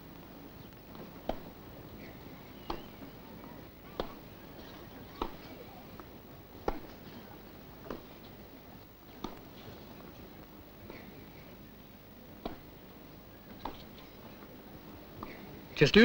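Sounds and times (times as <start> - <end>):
faint crowd noise: 0.0 - 16.0
racket hitting tennis ball: 1.1 - 3.1, 3.9 - 4.4, 5.0 - 5.8, 6.6 - 7.1, 7.8 - 8.3, 9.1 - 9.6, 12.4 - 12.8, 13.6 - 14.1, 15.2 - 15.5.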